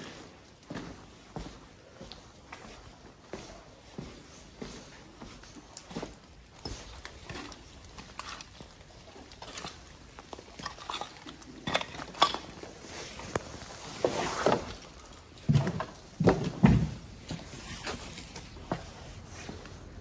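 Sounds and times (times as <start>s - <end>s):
footsteps crunching over rubble: 0.0s - 20.0s
scrap metal clinking and rattling: 6.6s - 13.7s.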